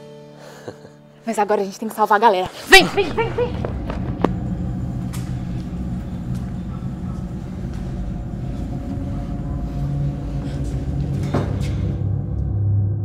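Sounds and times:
low rumbling drone: 0:02.8 - 0:13.0.

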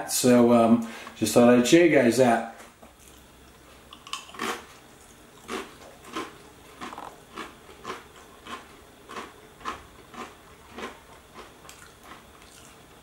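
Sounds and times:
person chewing crunchy cracker: 0:02.9 - 0:13.0.

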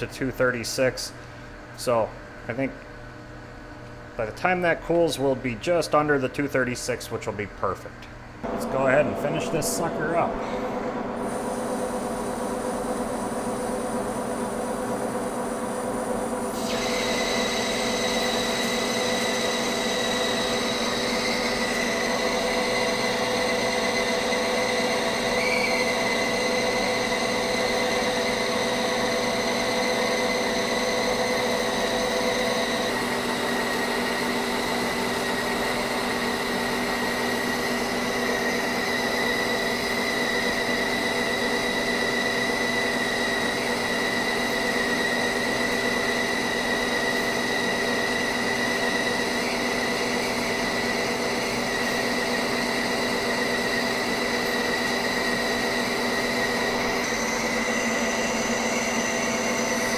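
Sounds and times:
lathe geared whine and hum: 0:08.1 - 0:59.9
higher steady whine: 0:08.4 - 0:28.2.

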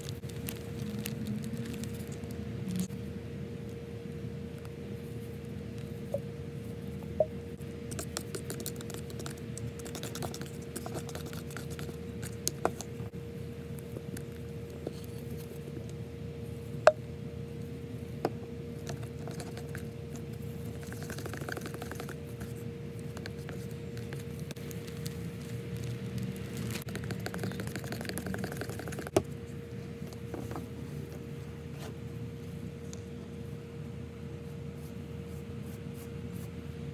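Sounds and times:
steady low hum: 0:00.0 - 0:36.9
brush scraping wet paste: 0:07.9 - 0:13.0, 0:18.8 - 0:25.9, 0:26.5 - 0:29.1
brush tapping plastic tub: 0:26.9 - 0:29.2.

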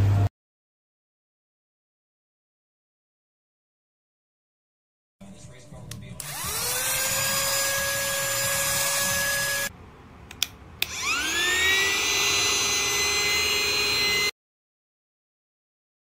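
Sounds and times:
mini vacuum cleaner motor whine: 0:06.2 - 0:09.7, 0:10.8 - 0:14.3.

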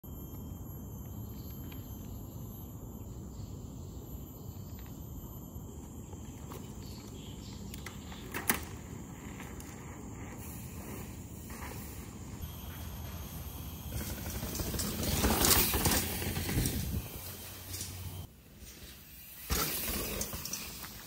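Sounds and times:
high insect drone: 0:00.1 - 0:21.0
bike clattering: 0:13.9 - 0:21.0.

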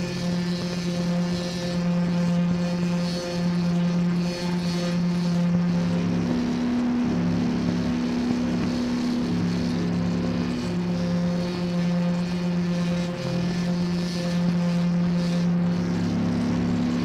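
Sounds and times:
electric guitar drone: 0:00.0 - 0:17.0.

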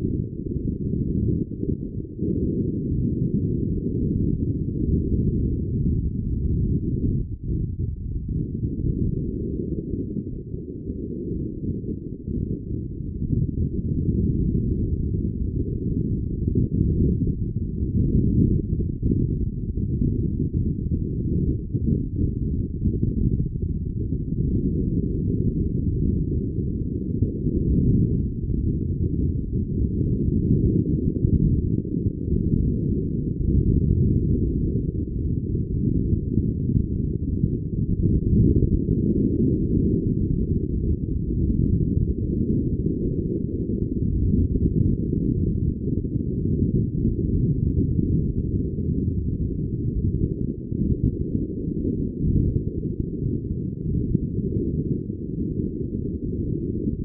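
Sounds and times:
muffled wind and water rumble: 0:00.0 - 0:57.0.

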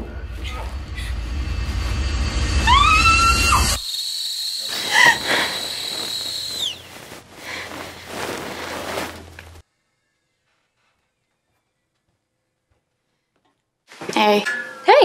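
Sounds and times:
low rumbling drone: 0:00.0 - 0:03.8
woman screaming: 0:02.6 - 0:03.8
woman gasping: 0:04.8 - 0:05.6.

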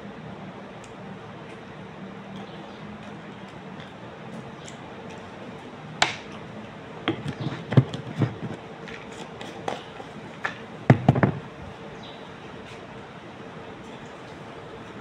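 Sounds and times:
faint steady hum: 0:00.0 - 0:15.0
objects knocked and set down: 0:07.1 - 0:08.6, 0:10.9 - 0:11.5.

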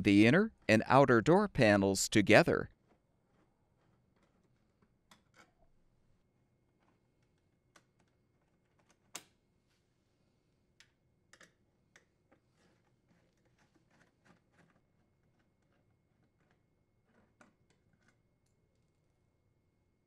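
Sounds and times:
screwdriver clicks and taps: 0:10.8 - 0:12.1.

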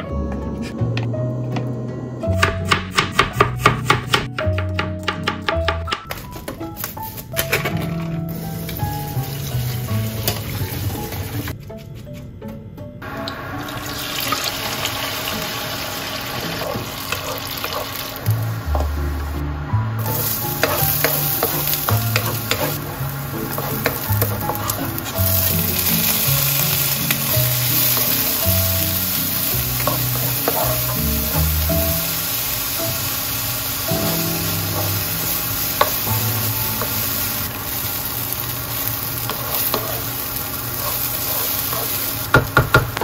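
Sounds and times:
food frying hiss: 0:08.3 - 0:11.6, 0:13.0 - 0:43.0
utensils clicking and tapping: 0:20.1 - 0:28.9, 0:29.8 - 0:31.3, 0:35.8 - 0:37.0, 0:38.3 - 0:43.0.

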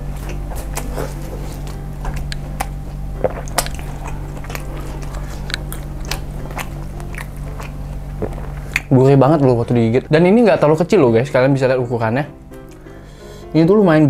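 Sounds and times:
steady low hum: 0:00.0 - 0:14.0
wet chewing clicks and smacks: 0:00.2 - 0:09.8.

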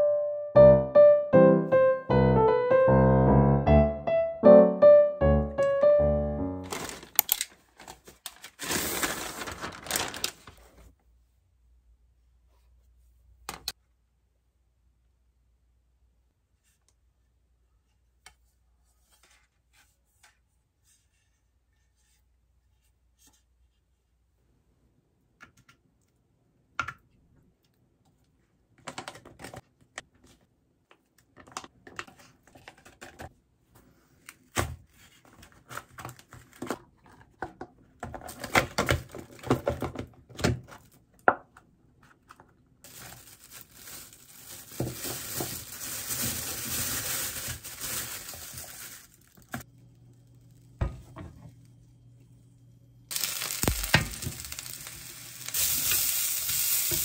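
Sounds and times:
plastic crinkling: 0:06.6 - 0:10.8, 0:42.8 - 0:49.6, 0:53.1 - 0:57.0
mushrooms sizzling in a frying pan: 0:53.1 - 0:57.0
steady hiss: 0:53.1 - 0:57.0.

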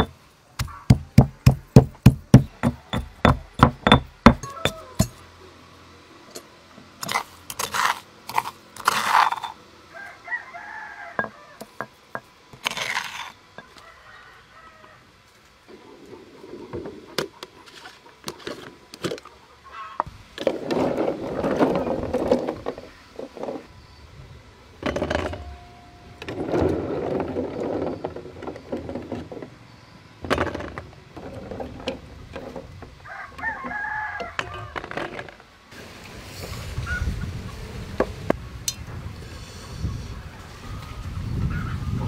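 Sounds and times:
rooster crowing: 0:04.4 - 0:05.1, 0:09.9 - 0:11.7, 0:13.6 - 0:15.1, 0:33.0 - 0:34.8.

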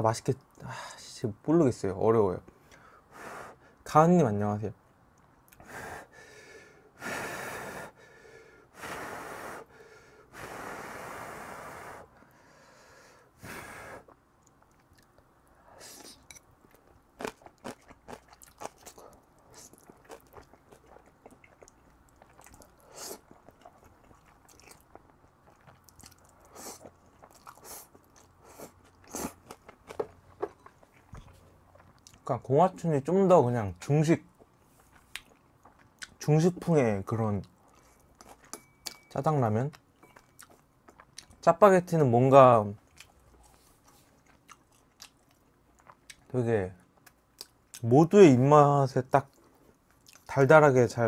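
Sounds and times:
wet chewing clicks: 0:16.7 - 0:32.3, 0:34.3 - 0:36.2, 0:39.7 - 0:41.4, 0:42.8 - 0:46.3, 0:49.2 - 0:50.3.

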